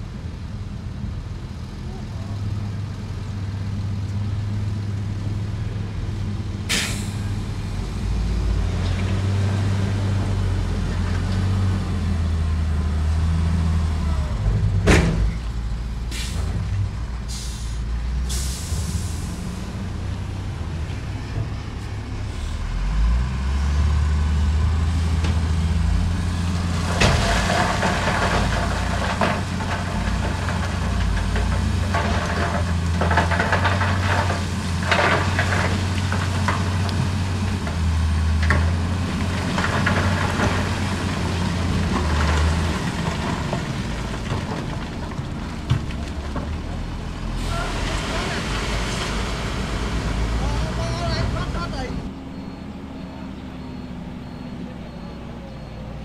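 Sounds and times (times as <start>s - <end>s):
heavy diesel machinery running: 0.1s - 56.0s
air brake hisses: 6.7s - 7.2s
stones clattering and grinding: 26.7s - 37.8s, 38.4s - 46.9s.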